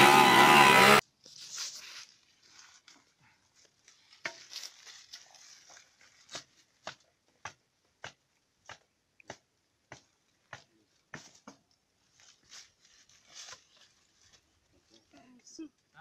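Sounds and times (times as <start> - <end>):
faint rustle: 1.2 - 6.7, 12.0 - 16.0.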